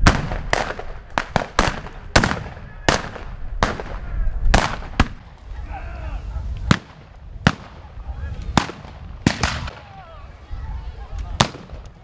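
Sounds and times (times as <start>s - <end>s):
rifle shots with echo: 0.0s - 5.3s, 6.7s - 7.9s, 8.6s - 9.9s.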